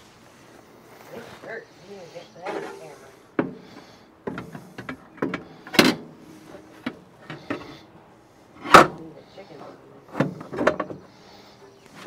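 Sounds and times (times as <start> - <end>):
steel grill parts clanking: 2.4 - 7.9, 8.5 - 9.0, 10.1 - 11.5.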